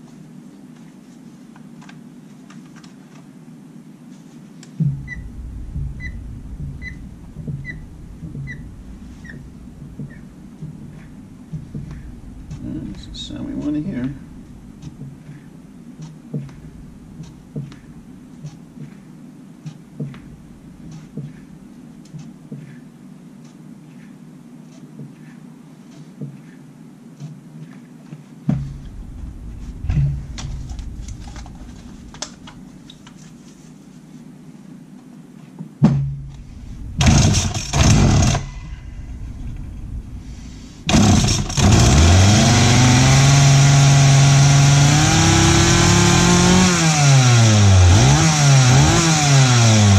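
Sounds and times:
chainsaw engine starting and running: 37.0 - 38.5, 40.9 - 49.9
starter pull bursts: 37.0 - 38.5, 40.9 - 49.9.

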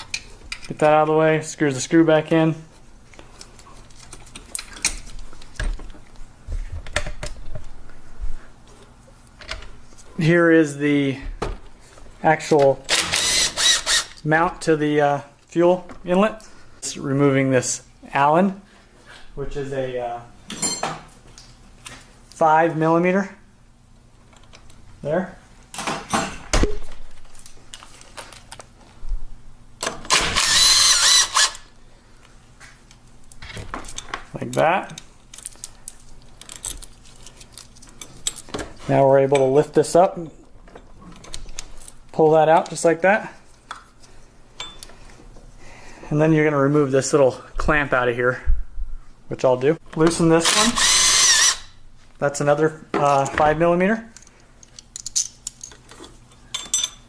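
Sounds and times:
small power driver running: 12.9 - 14.2, 30.1 - 31.7, 50.4 - 51.8.

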